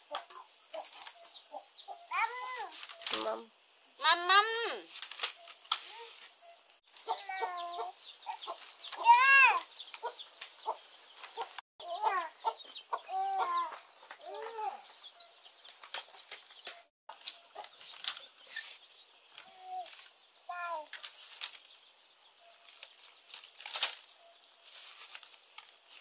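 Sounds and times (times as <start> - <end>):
hen clucking and calling: 6.9 - 14.5.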